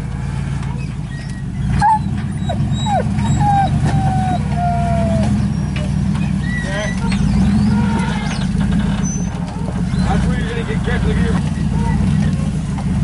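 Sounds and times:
truck engine at low revs: 0.0 - 13.0.

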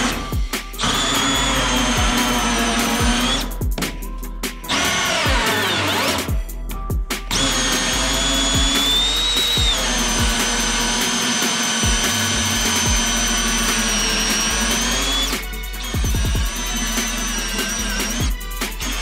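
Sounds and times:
cordless drill whining: 0.0 - 3.5, 4.7 - 6.3, 7.3 - 19.0.

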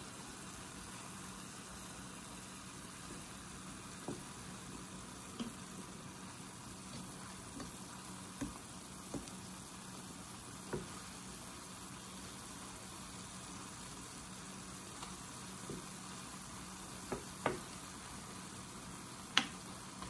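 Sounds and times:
meat sizzling in a pan: 0.0 - 20.0
wooden spoon knocking pan: 8.4 - 9.3.

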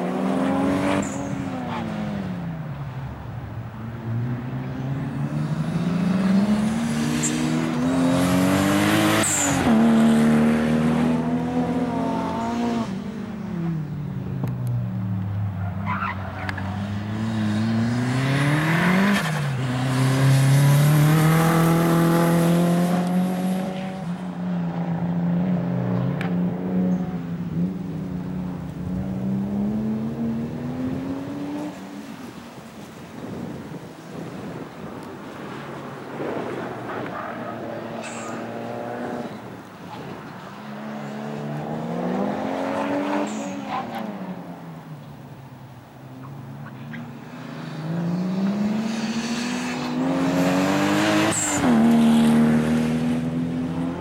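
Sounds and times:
car engine accelerating: 15.9 - 24.1.

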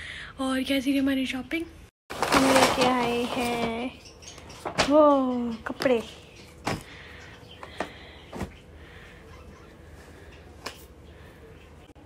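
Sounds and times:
handling noise of items: 2.1 - 11.4.

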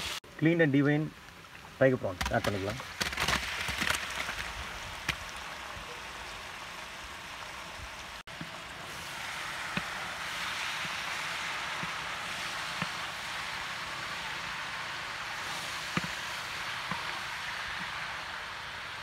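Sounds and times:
prawns sizzling in oil: 0.0 - 19.0
prawns knocking into pan: 2.2 - 5.3.

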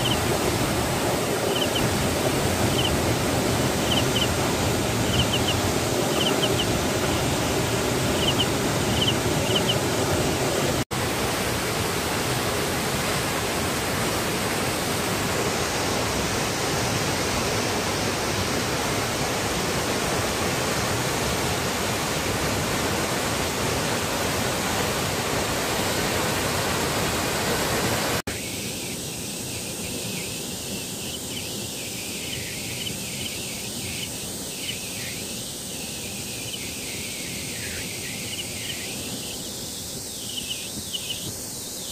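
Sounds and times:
waterfall rushing: 0.0 - 41.9
faint high chirps: 5.1 - 7.3, 8.1 - 9.8, 28.3 - 41.9.

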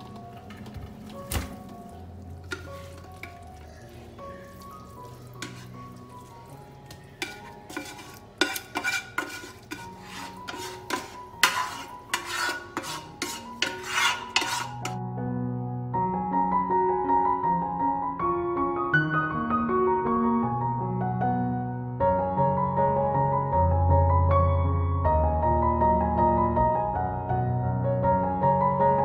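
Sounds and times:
background music: 0.0 - 29.0
spatula scraping metal pot: 2.4 - 3.9, 5.0 - 15.0.

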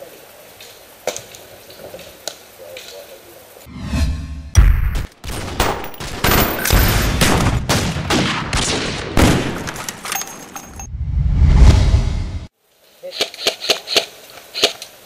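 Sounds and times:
deep low rumble: 10.9 - 12.5.

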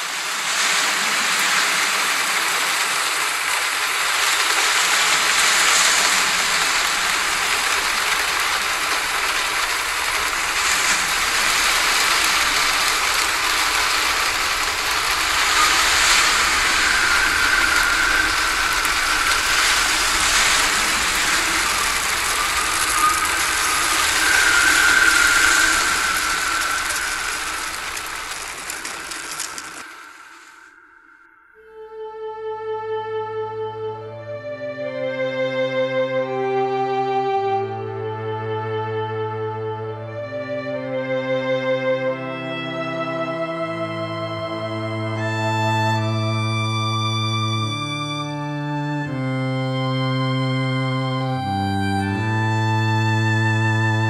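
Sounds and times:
strong wind blowing: 0.0 - 31.9
high wind whistle: 0.0 - 33.0, 42.0 - 54.0.

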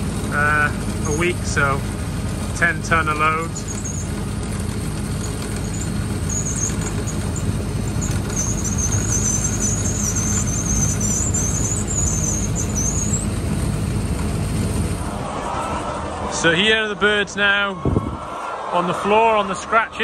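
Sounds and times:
conveyor machine hum: 0.0 - 20.0
high wavering squeal: 2.6 - 18.3.

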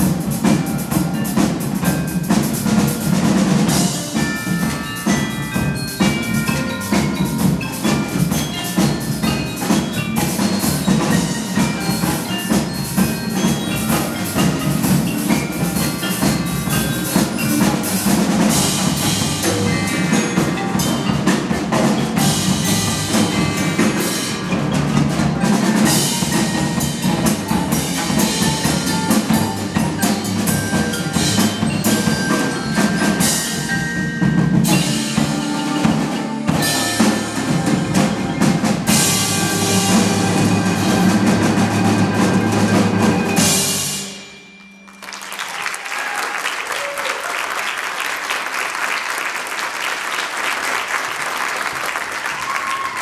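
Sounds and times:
percussion ensemble playing rock: 0.0 - 53.0
audience applauding: 44.8 - 53.0.

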